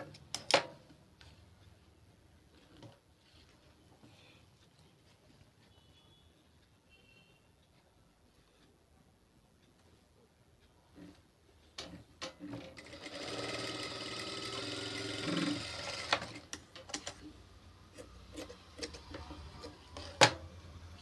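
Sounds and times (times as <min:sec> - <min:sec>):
sewing machine stitching: 0:12.2 - 0:17.3.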